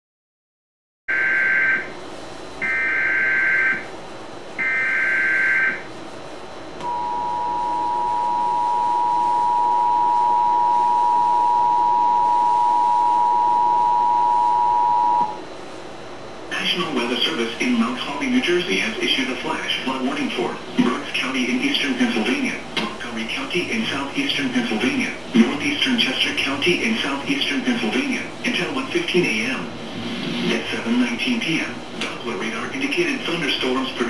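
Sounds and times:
two-tone attention signal: 0:06.8 - 0:15.4.

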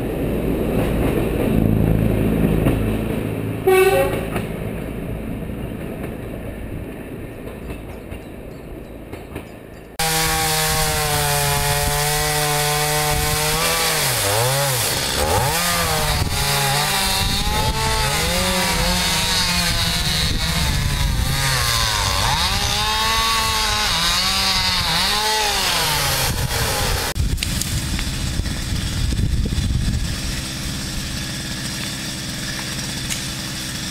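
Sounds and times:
diesel railcar engine hum: 0:00.0 - 0:10.0
chainsaw cutting scrub: 0:10.0 - 0:33.9.

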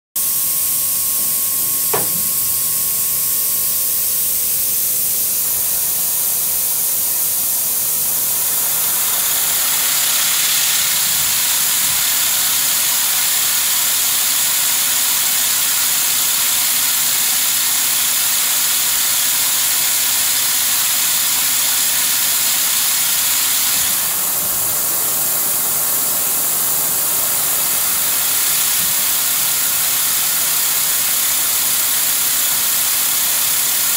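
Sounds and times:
machining center hiss: 0:00.2 - 0:33.9
machine hum: 0:00.4 - 0:12.0.

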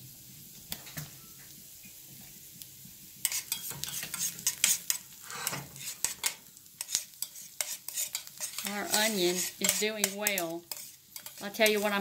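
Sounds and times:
onions sizzling: 0:00.0 - 0:12.0
metal tongs scraping a pan: 0:03.2 - 0:12.0.

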